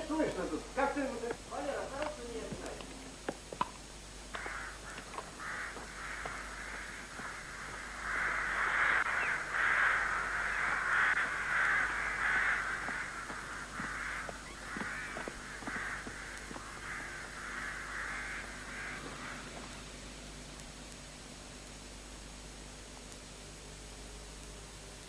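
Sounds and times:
crows cawing: 4.3s - 20.0s.

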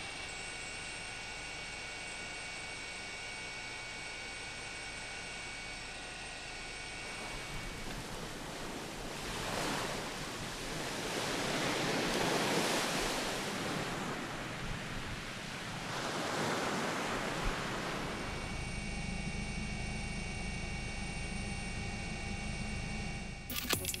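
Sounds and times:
steady engine-like hum: 0.0s - 24.0s
sea waves washing on shore: 7.2s - 18.4s.

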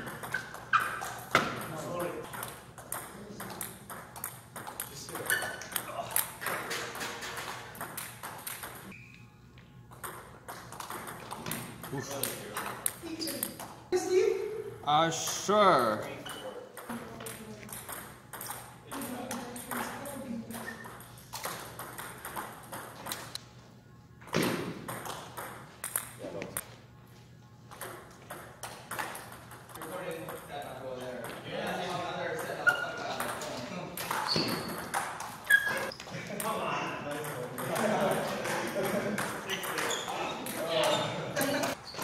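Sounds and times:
table tennis ball clicking: 24.9s - 26.2s.

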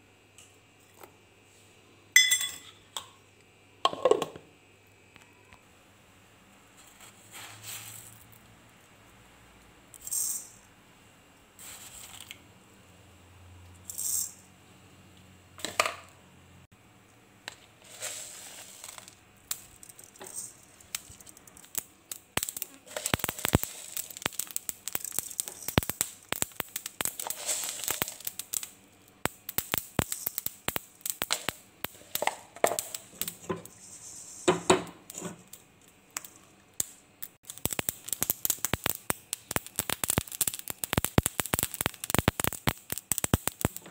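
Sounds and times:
seeds popping in hot pan: 9.9s - 10.6s, 13.9s - 14.4s, 17.4s - 43.9s
seeds rattling onto pan: 9.9s - 10.6s, 11.6s - 12.4s, 13.9s - 14.4s, 17.5s - 43.9s.

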